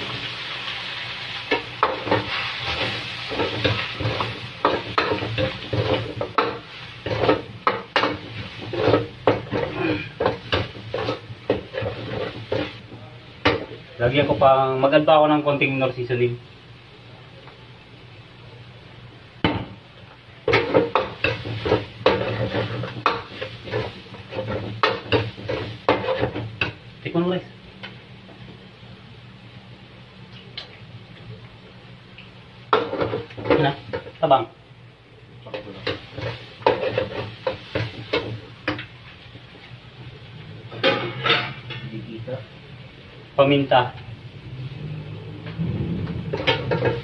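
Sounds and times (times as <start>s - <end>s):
food sizzling in a wok: 0.0s - 17.1s, 17.7s - 30.3s, 31.9s - 47.0s
metal spatula scraping a wok: 1.6s - 12.8s, 20.5s - 26.4s, 35.5s - 38.3s.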